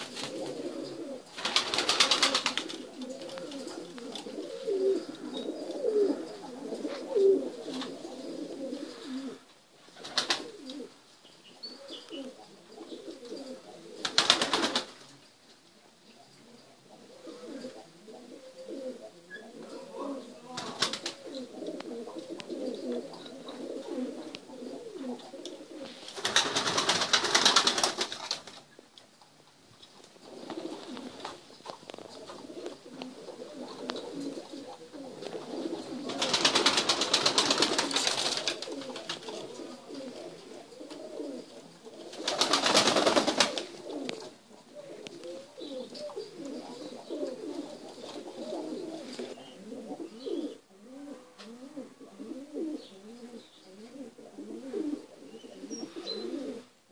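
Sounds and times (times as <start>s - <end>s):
pigeons cooing: 0.0s - 15.1s, 16.0s - 28.8s, 30.2s - 56.8s
loud rustling bursts: 26.0s - 28.6s.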